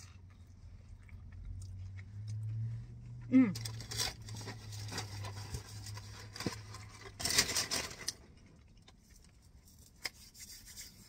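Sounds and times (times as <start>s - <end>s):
chewing crunchy food: 0.0s - 5.2s, 8.2s - 9.6s
low steady hum: 0.0s - 11.0s.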